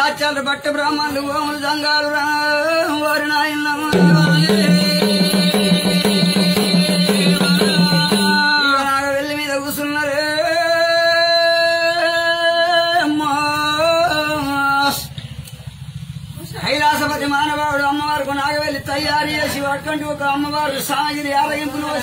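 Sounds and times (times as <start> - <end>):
man singing: 0.0 - 15.2
barrel drum beat with bells: 3.9 - 9.0.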